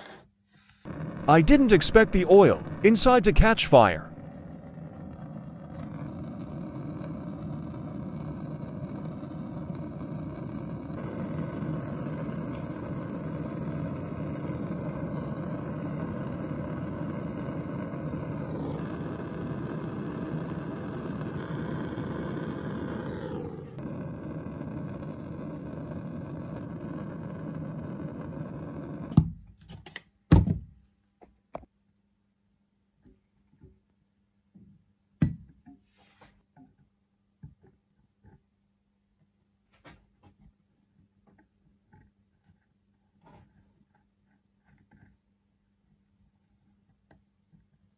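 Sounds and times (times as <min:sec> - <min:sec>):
machine running: 0:00.9 - 0:05.2.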